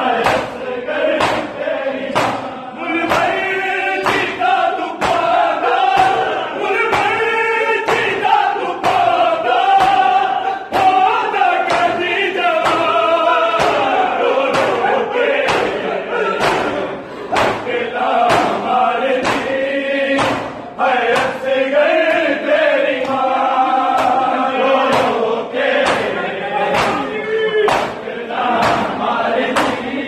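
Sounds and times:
men singing a lament in unison: 0:00.0 - 0:30.0
hands slapping bare chests: 0:00.2 - 0:02.5, 0:03.1 - 0:03.4, 0:04.0 - 0:07.3, 0:07.9 - 0:11.0, 0:13.6 - 0:13.9, 0:15.4 - 0:15.8, 0:16.4 - 0:19.6, 0:20.2 - 0:21.4, 0:23.9 - 0:24.3, 0:24.9 - 0:25.2, 0:25.8 - 0:26.2, 0:26.8 - 0:27.1, 0:27.7 - 0:28.0, 0:28.6 - 0:28.9, 0:29.6 - 0:29.8.

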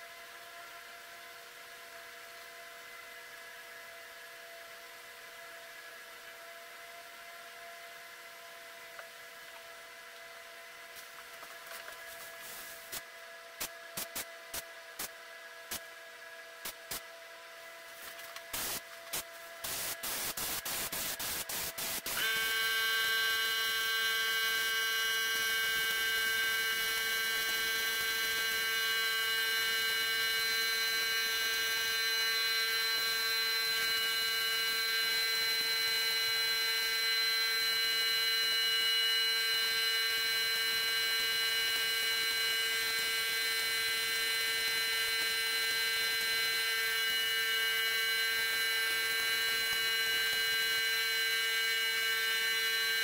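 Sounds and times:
spray gun air hiss: 0:12.2 - 0:15.1, 0:18.0 - 0:22.2
electric motor humming: 0:18.0 - 0:53.0
short bursts of hiss: 0:18.5 - 0:22.2.

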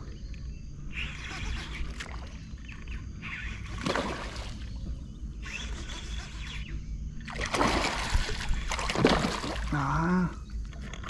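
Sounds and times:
water splashing: 0:03.7 - 0:04.7, 0:07.2 - 0:10.0.

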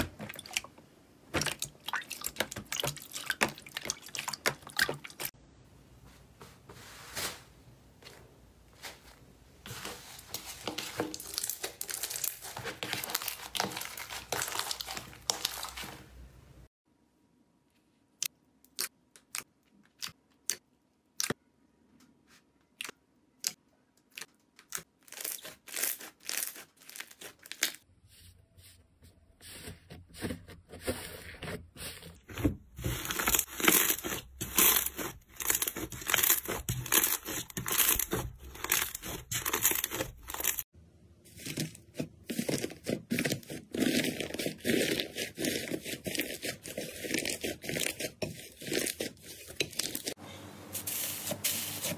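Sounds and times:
slime crackling and tearing: 0:11.0 - 0:16.0, 0:24.6 - 0:27.8, 0:32.8 - 0:40.6.

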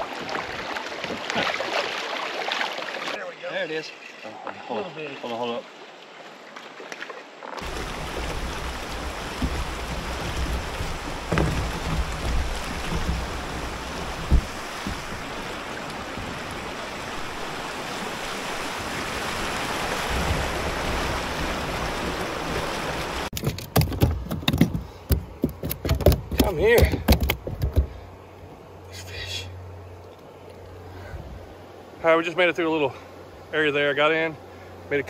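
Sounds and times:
whitewater rushing: 0:07.6 - 0:23.3
clicks and knocks: 0:23.3 - 0:28.0.

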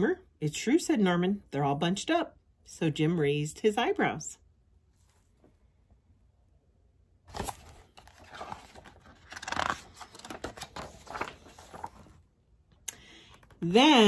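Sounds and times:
book pages rustling: 0:07.3 - 0:12.3.

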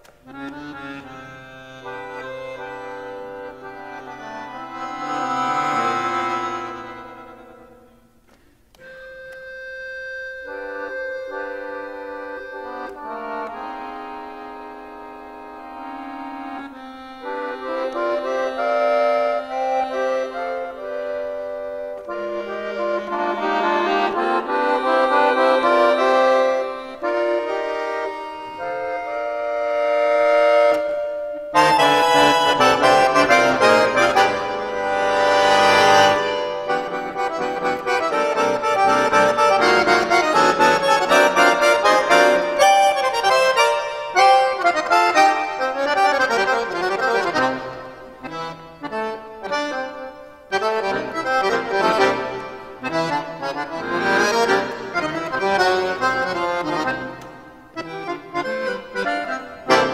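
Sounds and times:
accordion playing: 0:00.0 - 0:59.9.

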